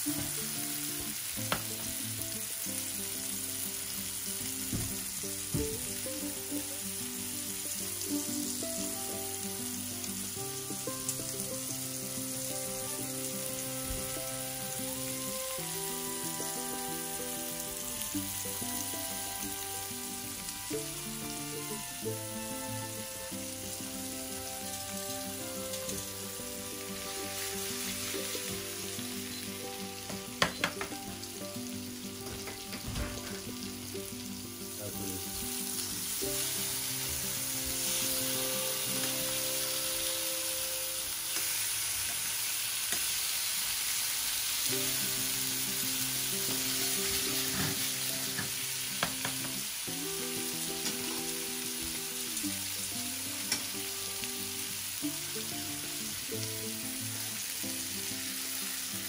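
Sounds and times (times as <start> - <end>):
fish sizzling in hot oil: 0.0 - 59.0.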